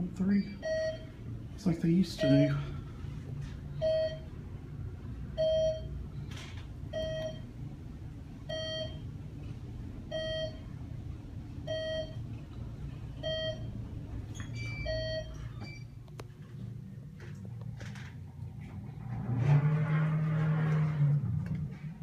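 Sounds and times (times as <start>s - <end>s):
elevator car humming: 0.0s - 22.0s
elevator short electronic beep: 13.2s - 13.7s, 14.4s - 16.0s.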